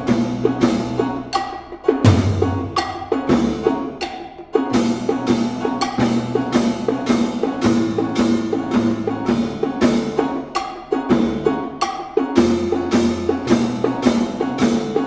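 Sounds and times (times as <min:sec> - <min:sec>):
mallet and drum strokes: 0:00.0 - 0:15.0.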